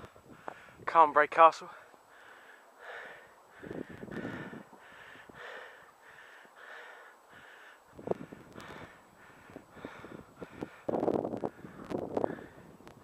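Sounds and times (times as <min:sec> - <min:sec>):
person breathing hard: 0:00.0 - 0:00.8, 0:01.7 - 0:12.8
wind rumbling on microphone: 0:00.0 - 0:00.9, 0:03.5 - 0:05.8, 0:07.8 - 0:13.0.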